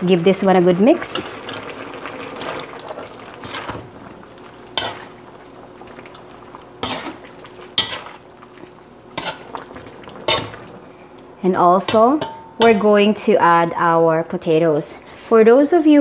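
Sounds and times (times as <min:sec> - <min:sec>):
spatula stirring stew in pan: 0:01.4 - 0:10.8
spatula clinking against pan: 0:11.9 - 0:12.9.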